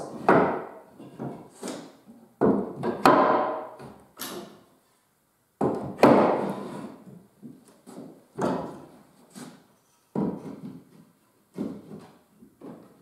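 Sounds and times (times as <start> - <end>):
wooden knocks: 0.1 - 1.4, 2.4 - 4.0, 5.6 - 6.6, 8.4 - 8.9, 10.1 - 13.0.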